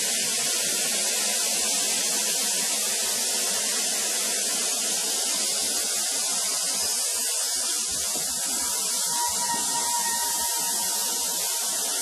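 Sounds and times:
compressed air hissing: 5.4s - 12.0s.

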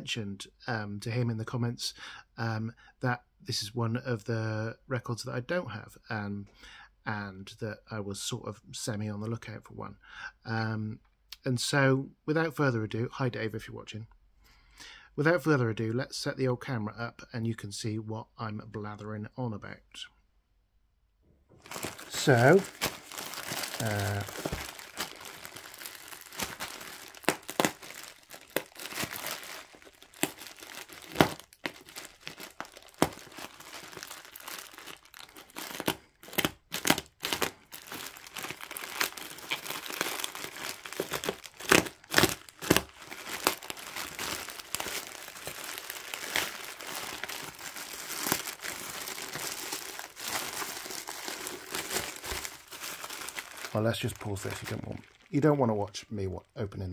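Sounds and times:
bubble wrap rustling: 21.5s - 55.8s
plastic film crinkling: 21.5s - 55.8s
plastic bag slit with knife: 21.7s - 35.2s.

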